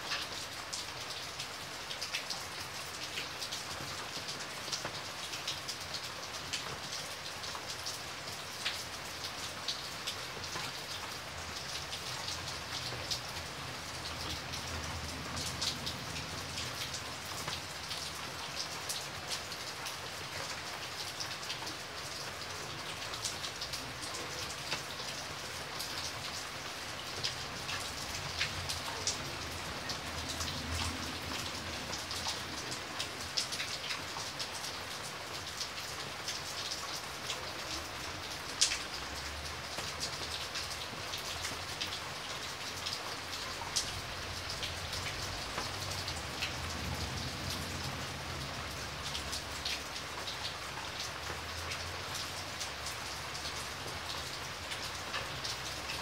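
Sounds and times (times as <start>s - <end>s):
rain on water and wet ground: 0.0s - 56.0s.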